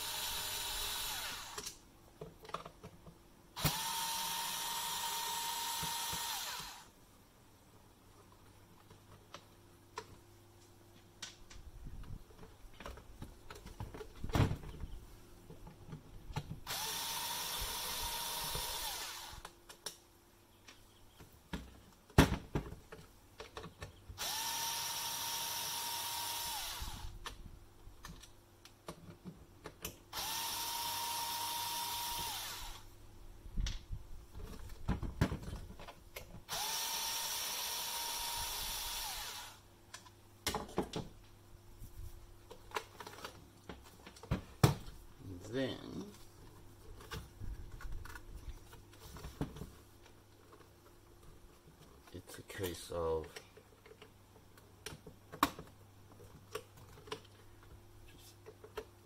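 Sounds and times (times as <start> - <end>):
electric screwdriver whining: 0.0 - 1.8, 3.6 - 6.9, 16.7 - 19.5, 24.2 - 27.2, 30.2 - 32.9, 36.5 - 39.6
clicks and knocks from handling parts: 1.5 - 3.2, 20.6 - 24.1, 39.9 - 41.4, 42.4 - 44.9, 46.4 - 59.0.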